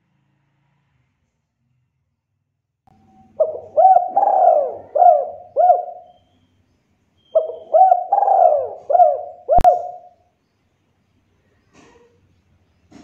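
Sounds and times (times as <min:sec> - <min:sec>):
dove cooing: 0:03.3 - 0:06.2, 0:07.4 - 0:10.2.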